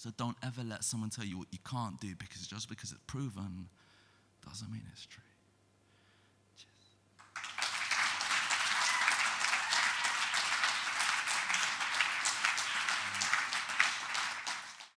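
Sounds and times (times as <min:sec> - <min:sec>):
audience applause: 0:07.2 - 0:15.0.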